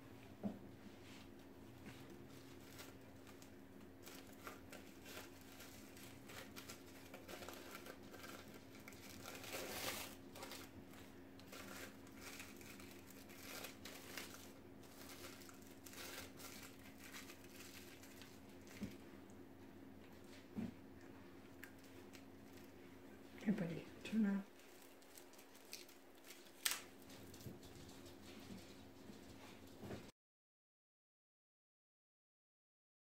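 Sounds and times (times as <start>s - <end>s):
fabric wrap crinkling and rustling: 1.9s - 19.0s, 24.5s - 29.8s.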